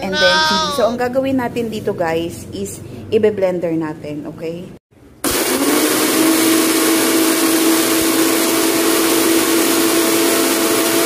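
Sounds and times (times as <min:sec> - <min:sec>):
electric blender running: 0:05.2 - 0:11.0.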